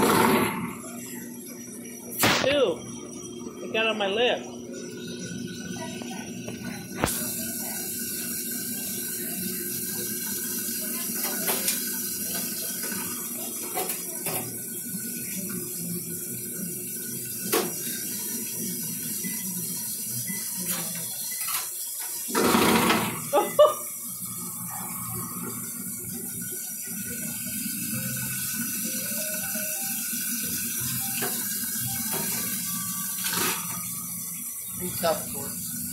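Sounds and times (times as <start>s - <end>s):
faucet running into metal sink: 4.1s - 35.9s.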